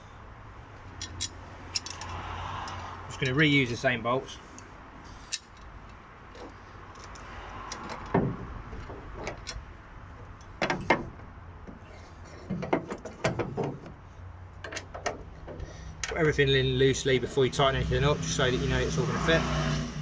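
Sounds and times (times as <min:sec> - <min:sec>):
metal clinks and knocks: 0:00.8 - 0:03.3, 0:05.2 - 0:14.0, 0:14.6 - 0:16.2.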